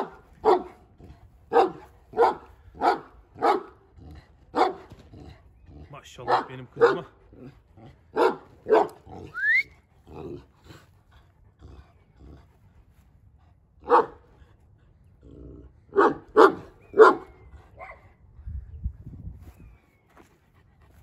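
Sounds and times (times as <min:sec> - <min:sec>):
large dog barking deeply: 0:00.0 - 0:09.4, 0:10.0 - 0:10.8, 0:13.8 - 0:14.3, 0:15.2 - 0:18.2.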